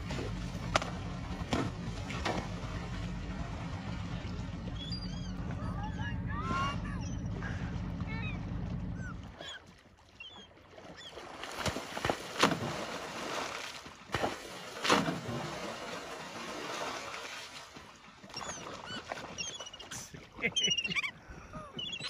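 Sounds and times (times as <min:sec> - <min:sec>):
sea lion slapping fish on water: 0:00.0 - 0:03.6, 0:10.8 - 0:19.8
sloshing water: 0:00.0 - 0:22.0
gulls calling: 0:02.8 - 0:11.3, 0:18.2 - 0:22.0.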